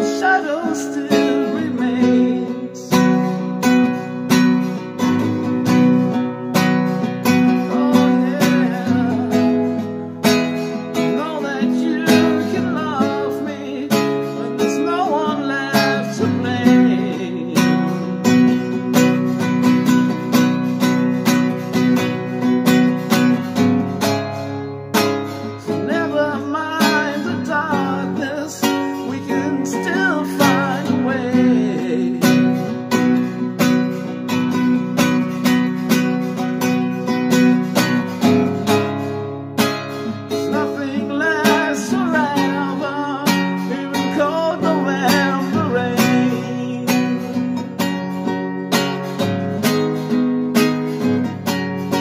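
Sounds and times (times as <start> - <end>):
wordless vocal melody: 0.0 - 36.6, 37.5 - 51.0
classical guitar strumming chords: 0.0 - 52.0.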